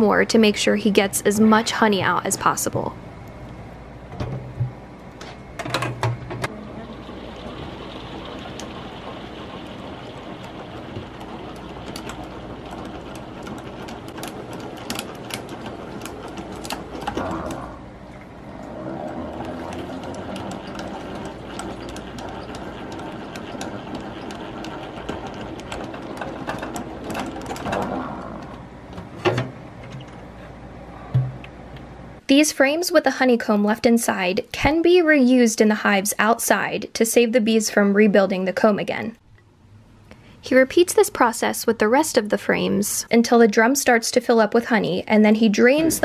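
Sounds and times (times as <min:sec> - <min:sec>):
honey extractor whirring and rattling: 0:05.6 - 0:29.5.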